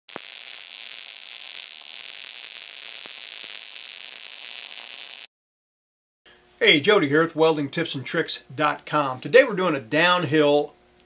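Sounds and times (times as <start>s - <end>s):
welding arc sizzling: 0.1s - 5.3s.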